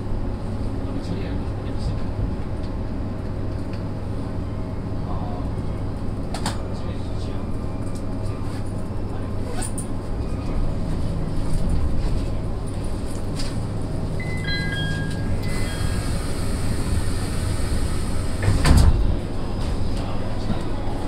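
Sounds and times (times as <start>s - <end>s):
train equipment humming: 0.0s - 21.0s
short electronic tones: 14.2s - 16.3s
sliding doors shutting thump: 18.2s - 19.2s.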